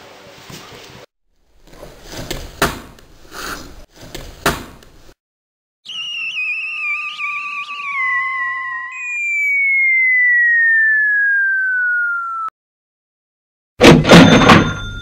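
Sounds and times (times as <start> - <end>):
whistling tone falling in pitch: 5.8 - 12.6.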